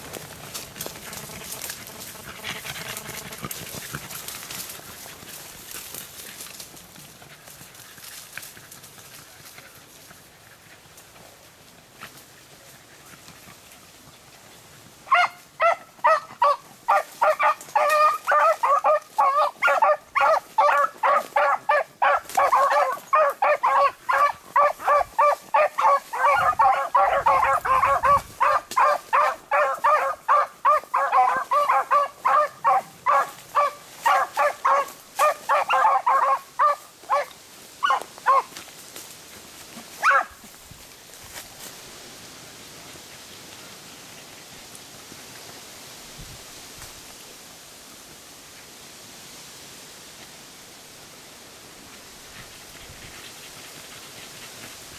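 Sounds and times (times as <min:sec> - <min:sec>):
dogs baying: 0:15.1 - 0:38.6, 0:40.0 - 0:40.4.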